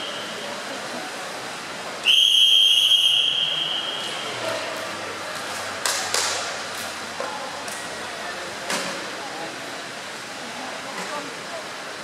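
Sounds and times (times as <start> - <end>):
referee's whistle blast: 2.0 - 4.1.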